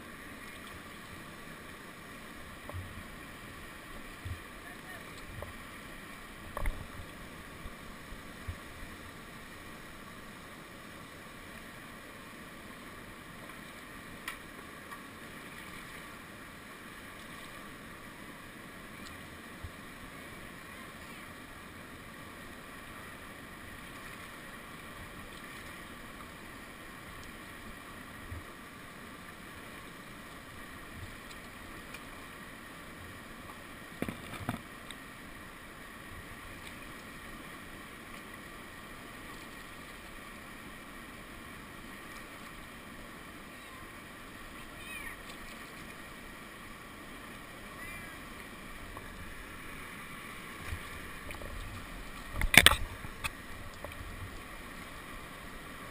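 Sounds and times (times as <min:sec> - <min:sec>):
whitewater rapid rushing: 0:34.6 - 0:55.9.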